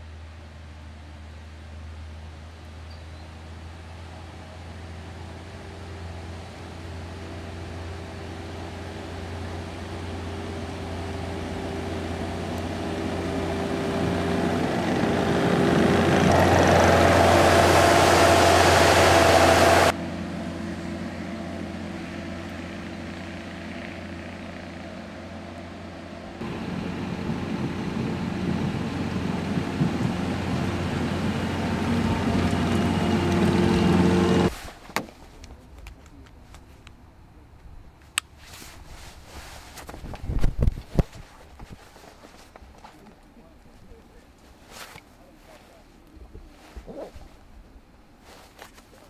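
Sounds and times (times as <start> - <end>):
loader pushing snow: 2.9 - 34.7
diesel engine of loader running: 3.4 - 34.5.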